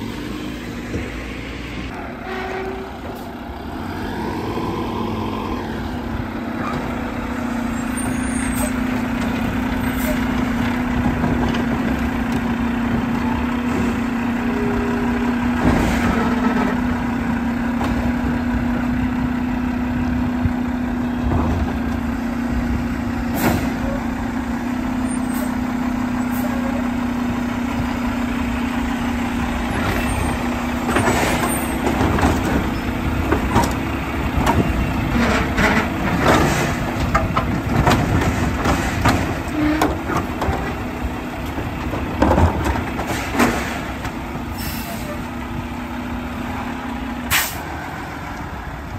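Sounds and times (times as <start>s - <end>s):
diesel truck engine humming: 0.0s - 48.9s
metal knocks and clanks: 30.8s - 44.2s.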